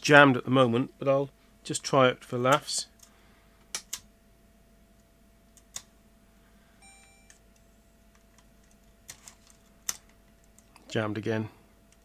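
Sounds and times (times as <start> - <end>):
short electronic beep: 6.8 - 7.4.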